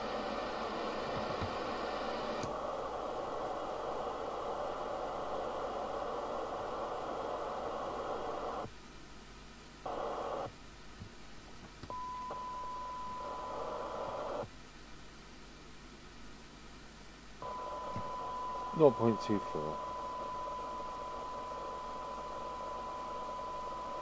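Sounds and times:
radio receiver hiss: 0:00.0 - 0:08.8, 0:09.8 - 0:10.6, 0:11.8 - 0:14.5, 0:17.4 - 0:24.0
steady test tone: 0:17.4 - 0:24.0.

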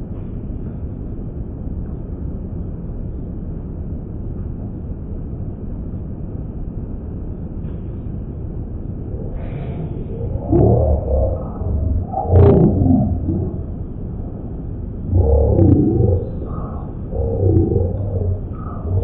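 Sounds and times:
jet cabin rumble: 0:08.8 - 0:19.0.

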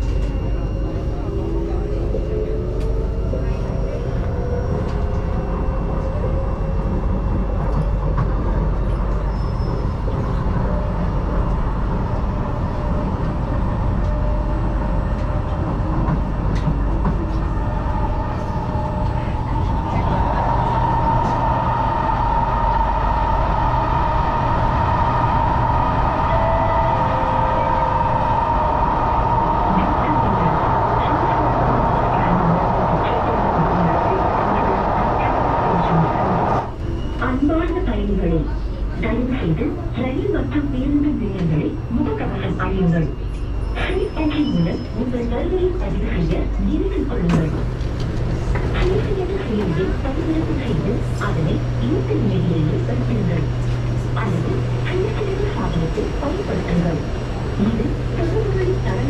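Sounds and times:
train wheels rumbling on track: 0:00.0 - 0:59.0
steady high tone: 0:18.4 - 0:37.5.

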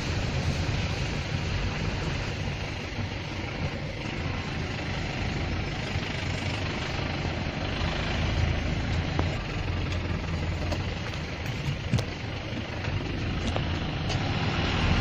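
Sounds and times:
steady rain hiss: 0:00.0 - 0:11.6
low continuous rumble: 0:00.0 - 0:15.0.

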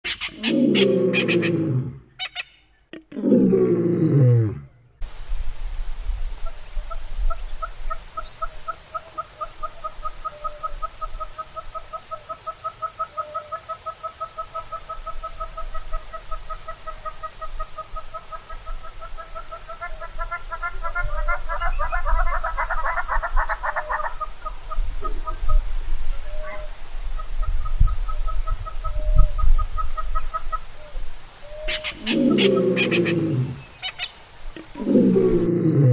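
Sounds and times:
small birds chirping: 0:06.4 - 0:35.5
hornbill clucking call: 0:07.3 - 0:25.5, 0:31.5 - 0:35.4.

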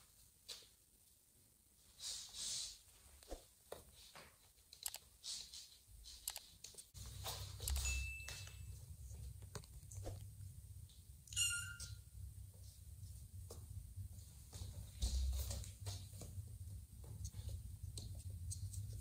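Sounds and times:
kitten paws clicking on floor: 0:03.2 - 0:10.3, 0:14.4 - 0:19.0.

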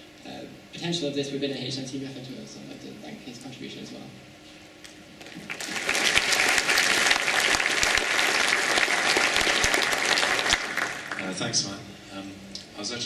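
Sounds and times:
audience applauding: 0:05.2 - 0:11.6.

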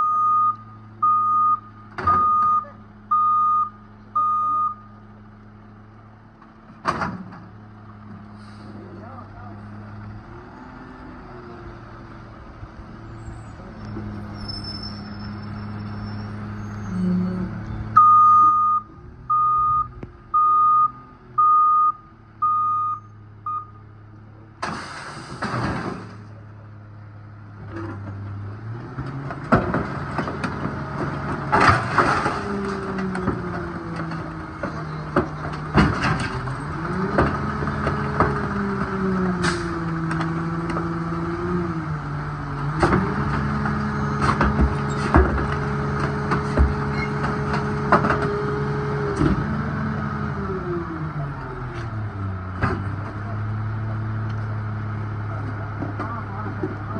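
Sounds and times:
reversing alarm beeps: 0:00.0 - 0:04.9, 0:18.0 - 0:23.8
diesel engine revving: 0:00.0 - 0:56.9
items clanking and crushed: 0:29.2 - 0:38.5.

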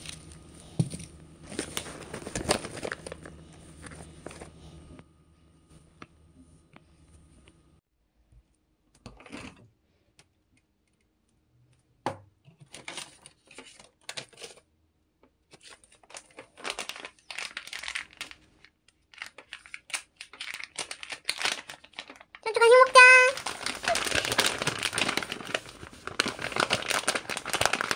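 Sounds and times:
dry rustling and crinkling: 0:00.0 - 0:04.7, 0:15.6 - 0:27.9.

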